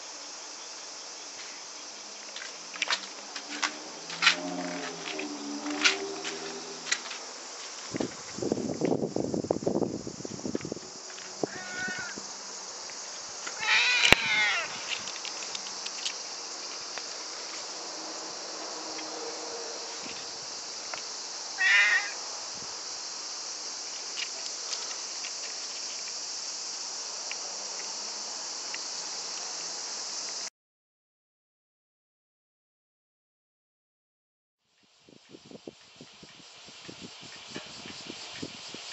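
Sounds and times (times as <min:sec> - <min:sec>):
insects shrilling: 0:00.0 - 0:30.5
cat meowing: 0:11.5 - 0:12.2, 0:13.6 - 0:14.7, 0:21.6 - 0:22.2.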